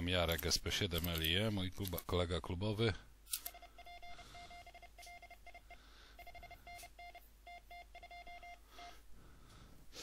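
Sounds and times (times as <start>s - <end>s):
morse code beeps: 3.5s - 9.0s.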